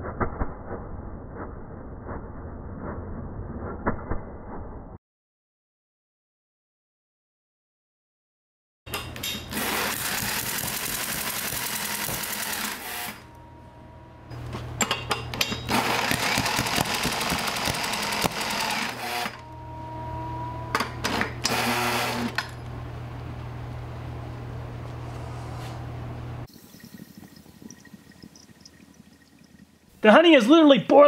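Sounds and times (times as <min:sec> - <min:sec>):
engine low hum: 0:08.9 - 0:26.5
faint steady engine whine: 0:08.9 - 0:26.5
small lawn mower engine clattering: 0:14.3 - 0:19.4.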